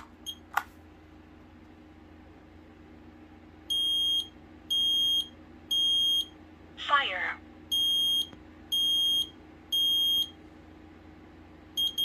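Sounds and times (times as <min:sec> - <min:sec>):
high-pitched alarm beeps: 0:03.7 - 0:06.3, 0:07.7 - 0:10.4, 0:11.8 - 0:12.0
alarm test chirp: 0:03.7 - 0:06.4, 0:07.7 - 0:10.4, 0:11.8 - 0:12.0.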